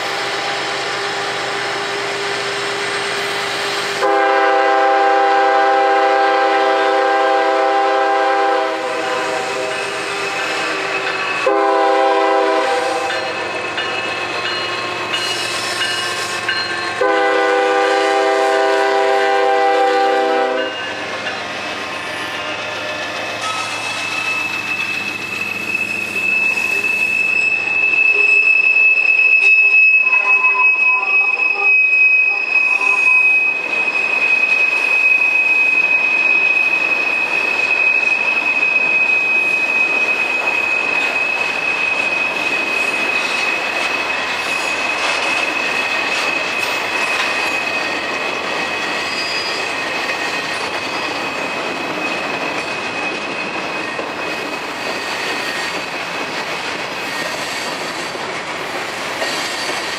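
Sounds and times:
diesel locomotive engines humming: 0.0s - 29.4s
train wheels rumbling and clattering: 0.0s - 30.4s, 32.4s - 59.9s
train wheel squeal: 0.0s - 59.9s.

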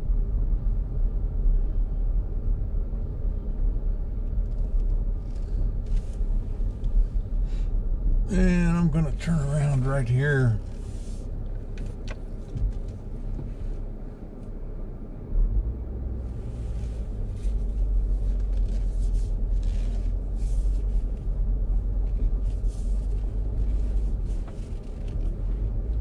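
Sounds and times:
car driving on gravel: 4.0s - 14.6s, 16.2s - 26.0s.

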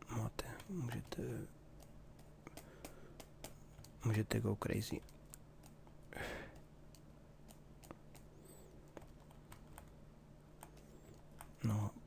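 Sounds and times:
mouse and keyboard clicks: 0.5s - 4.0s, 4.9s - 10.0s, 10.6s - 11.6s.

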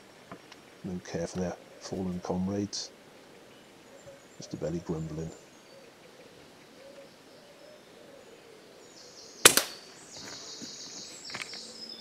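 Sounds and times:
air rifle shot: 9.4s - 9.9s.

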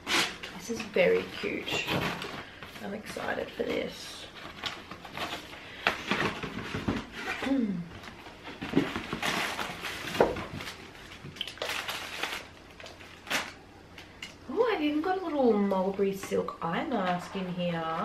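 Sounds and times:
tissue paper rustling: 8.1s - 13.6s.

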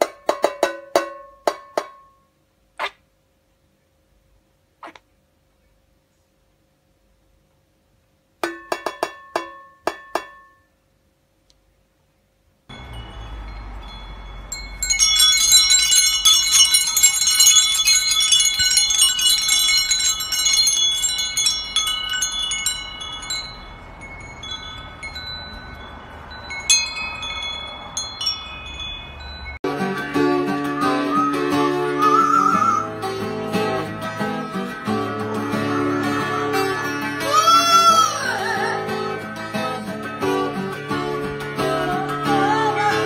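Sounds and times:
bird tapping metal pot: 8.4s - 10.6s
wind chimes jangling: 12.7s - 29.7s.

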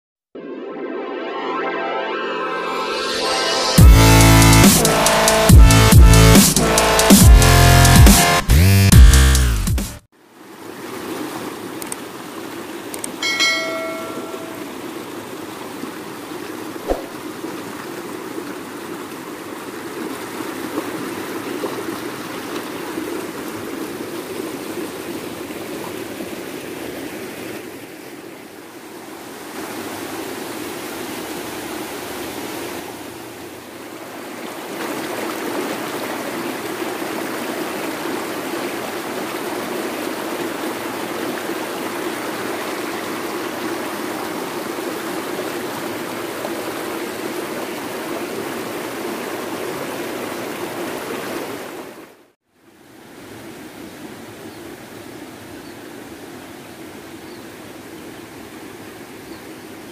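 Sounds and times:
river rushing over boulders: 10.4s - 52.2s.

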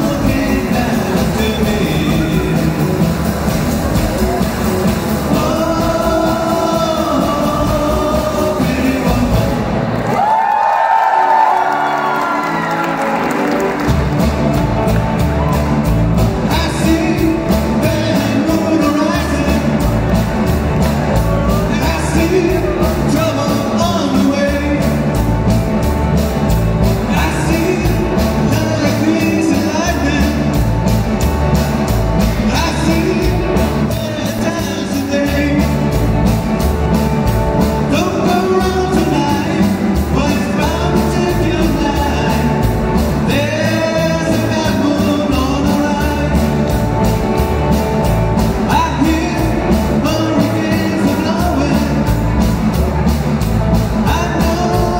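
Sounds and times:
person singing: 0.0s - 3.0s, 4.1s - 9.8s, 16.4s - 20.0s, 20.8s - 25.3s, 26.9s - 30.8s, 32.2s - 36.0s, 37.8s - 47.5s, 48.6s - 52.6s, 54.0s - 54.9s
drum kit beat: 0.0s - 10.4s, 12.0s - 54.9s
bass guitar: 0.0s - 54.9s
electric guitars: 0.0s - 54.9s.

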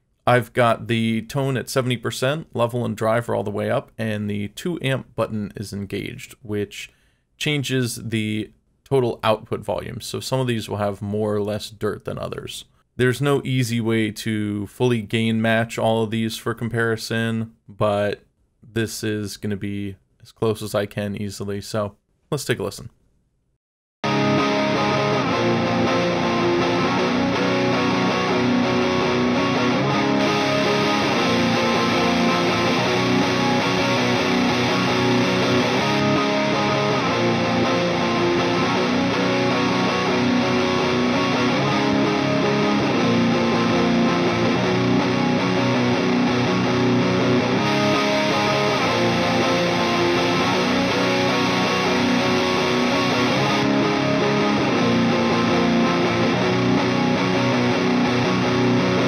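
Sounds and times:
overdriven electric guitar riff: 24.0s - 59.0s.

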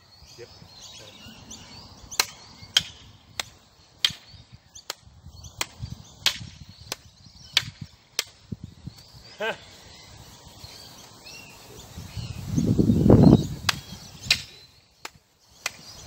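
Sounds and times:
wooden sticks striking umbrella: 2.2s - 8.4s, 13.6s - 15.9s.

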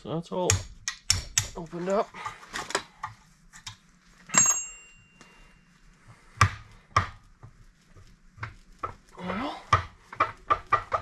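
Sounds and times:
sharp ringing metallic clank: 4.3s - 5.2s.

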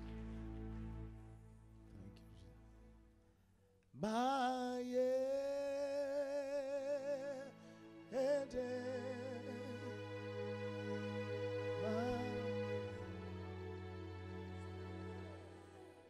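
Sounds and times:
sustained instrumental chords: 0.0s - 3.5s, 6.8s - 16.0s
person singing with vibrato: 4.0s - 13.6s.

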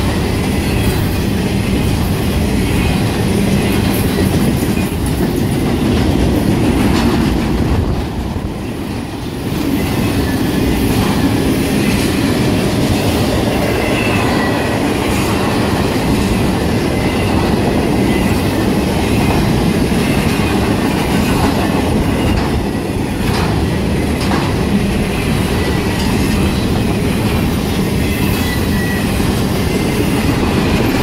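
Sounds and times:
freight train rumble and clatter: 0.0s - 31.0s
high wheel squeal: 9.6s - 19.3s, 25.0s - 31.0s.

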